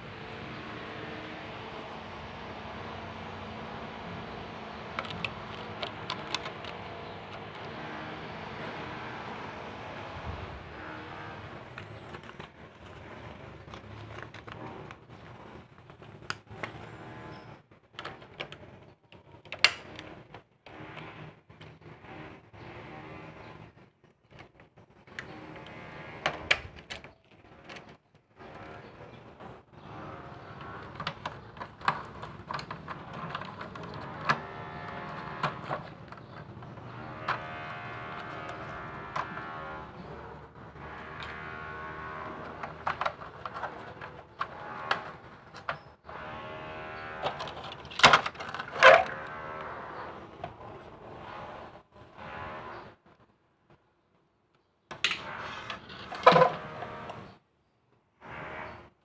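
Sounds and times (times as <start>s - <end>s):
clicks and knocks of plastic: 4.8s - 7.8s, 11.6s - 17.0s, 17.7s - 22.0s, 24.0s - 39.6s, 42.1s - 46.3s, 47.2s - 49.4s, 54.9s - 57.1s
screwdriver and plastic parts clicking: 4.9s - 7.7s.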